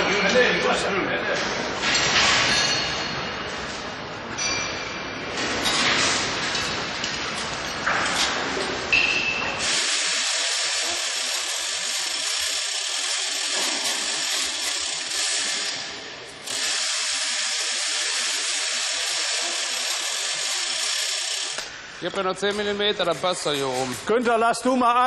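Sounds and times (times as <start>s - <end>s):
power tool high-pitched hiss: 9.6s - 21.7s.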